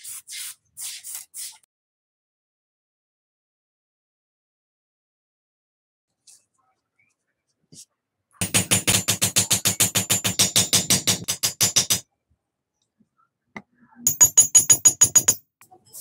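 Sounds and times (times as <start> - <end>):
hammer tapping metal rivets: 8.4 - 12.1, 14.1 - 15.5.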